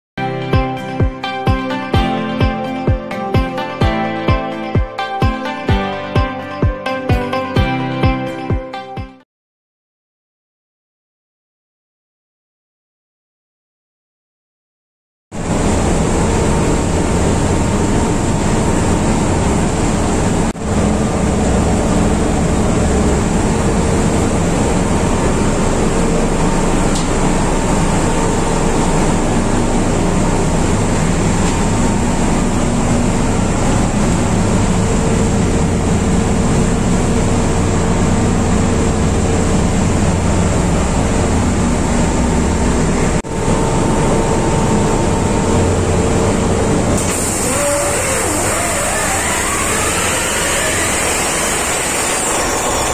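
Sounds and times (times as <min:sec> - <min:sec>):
diesel generators droning: 0:15.4 - 0:52.9
faint machinery whine: 0:15.4 - 0:52.9.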